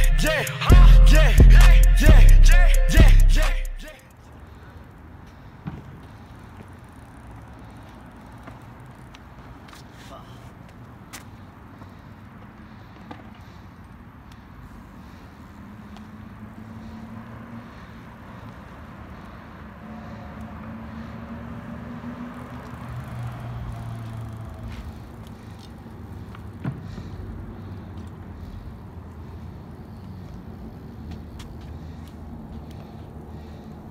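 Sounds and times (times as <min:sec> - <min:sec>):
road traffic rumble: 0:00.0 - 0:33.9
engine hum: 0:14.4 - 0:33.9.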